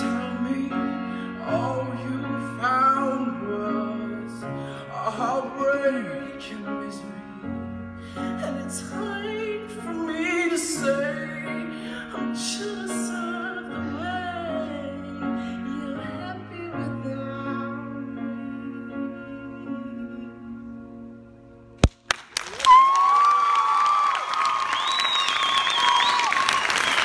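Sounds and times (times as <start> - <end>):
man singing a slow ballad: 0.0 - 20.6
grand piano chords: 0.0 - 22.0.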